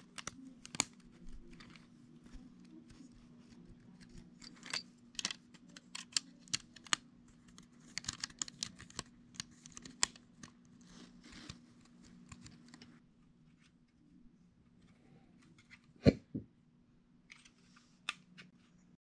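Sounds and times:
plastic bricks clicking and snapping: 4.5 - 10.2.

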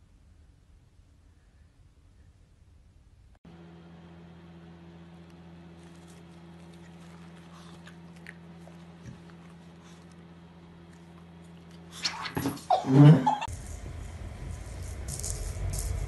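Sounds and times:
steady low hum: 0.0 - 16.0
dog chewing and smacking: 5.7 - 12.4.

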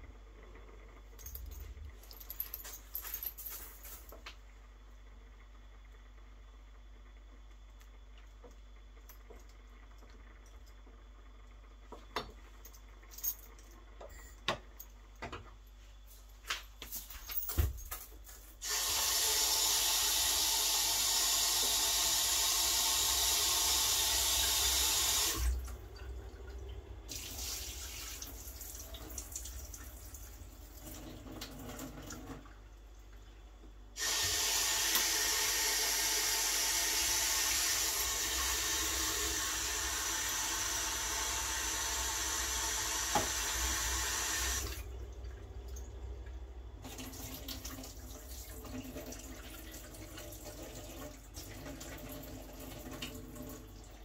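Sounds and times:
tap running into sink: 43.0 - 43.6.

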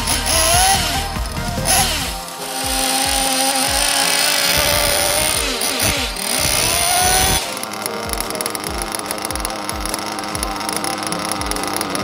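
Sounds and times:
small engine buzzing whine: 0.0 - 12.0.

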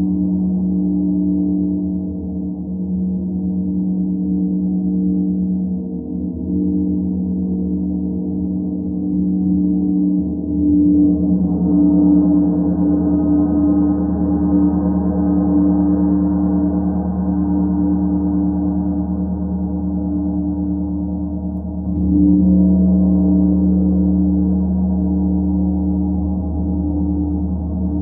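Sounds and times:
gong deep sustained drone: 0.0 - 28.0.

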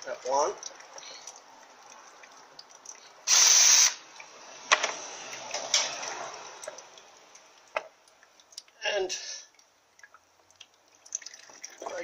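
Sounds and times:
power tool burst: 3.3 - 4.0.

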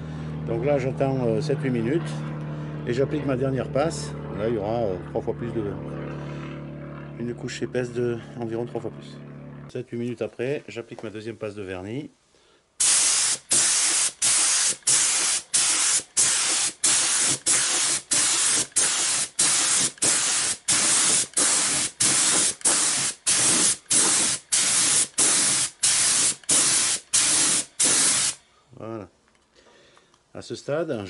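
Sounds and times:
spray gun hissing bursts: 12.8 - 28.4.

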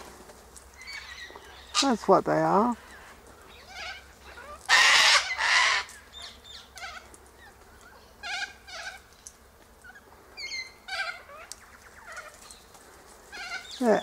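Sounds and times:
cockatoos screeching and squawking: 2.6 - 9.1, 9.8 - 14.0.

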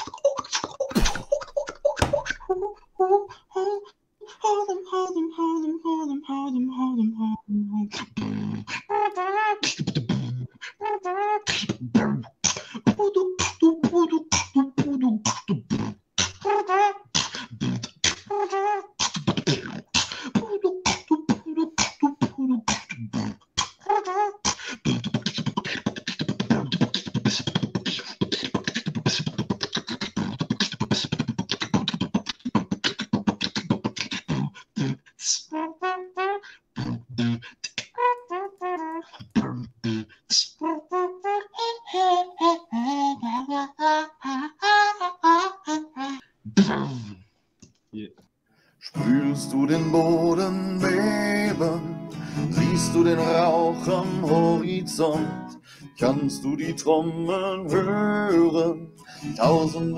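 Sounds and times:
beatboxing: 0.0 - 2.8, 7.8 - 47.2, 48.8 - 59.9
hummed melodic phrases: 49.0 - 59.9.

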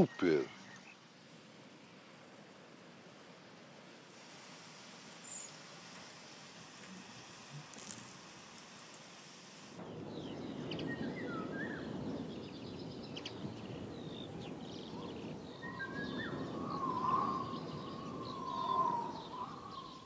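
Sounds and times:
small birds chirping: 0.0 - 2.6, 5.0 - 9.2, 9.8 - 20.0
outdoor background noise: 0.0 - 20.0
longer loud bird call: 9.8 - 20.0.

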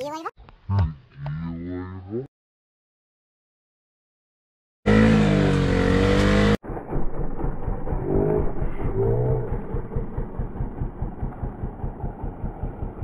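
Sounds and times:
motorcycle engine burst: 4.9 - 13.0
motorcycle engine rumble: 4.9 - 13.0.

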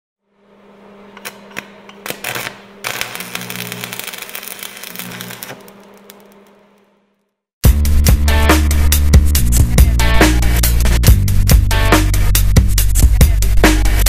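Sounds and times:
static and crackling clicks: 2.1 - 7.0.

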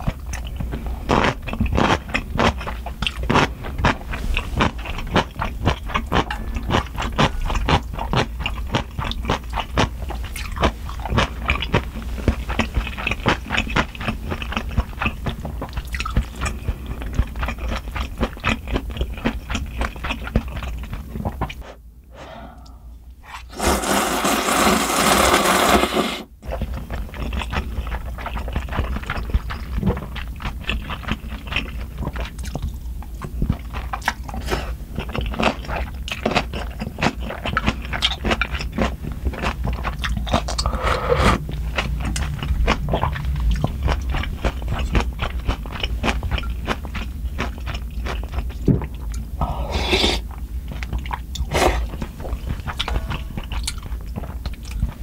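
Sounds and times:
chewing with wet clicks: 0.0 - 21.6, 26.4 - 40.7, 41.4 - 49.3, 50.7 - 55.0
slurping noodles: 21.5 - 26.3, 40.3 - 41.4, 49.4 - 50.4, 51.5 - 52.0.

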